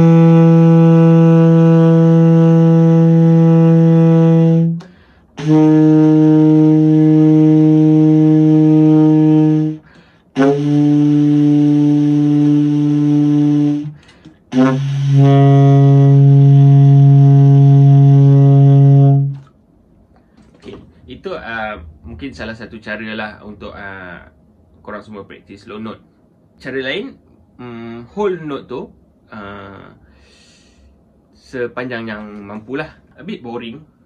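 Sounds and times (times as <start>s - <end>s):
saxophone sustained low notes: 0.0s - 19.5s.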